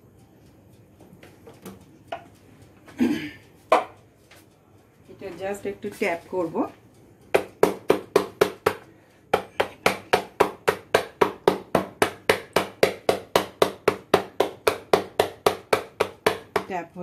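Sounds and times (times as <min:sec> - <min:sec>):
silicone mould knocking on stone worktop: 0:03.7 - 0:04.0, 0:07.3 - 0:08.8, 0:09.4 - 0:16.8.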